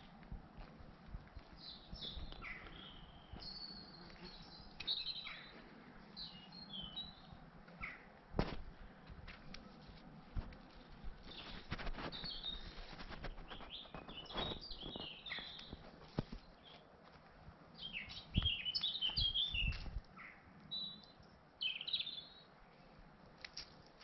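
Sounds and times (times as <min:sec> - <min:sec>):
footsteps on woodland path: 0:00.0 - 0:20.0
songbirds chirping: 0:00.0 - 0:24.0
low thuds: 0:08.4 - 0:09.3.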